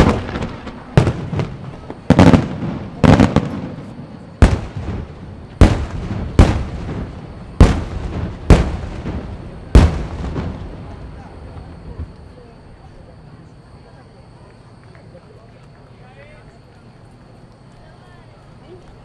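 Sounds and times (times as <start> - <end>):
firework booms: 0.0 - 12.4
firework crackle: 0.0 - 13.6.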